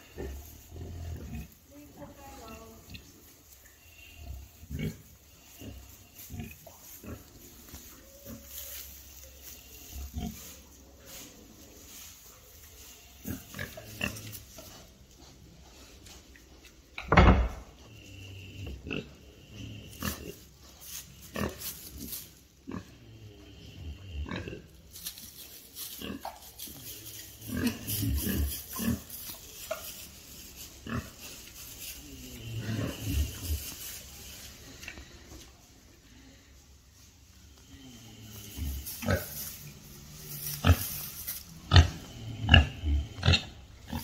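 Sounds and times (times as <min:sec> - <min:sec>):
pigs grunting: 0:00.0 - 0:01.6, 0:04.1 - 0:07.5, 0:17.9 - 0:20.6, 0:21.3 - 0:24.8, 0:25.9 - 0:34.0, 0:37.6 - 0:44.0
straw rustling: 0:00.0 - 0:16.9, 0:19.8 - 0:22.8, 0:24.3 - 0:44.0.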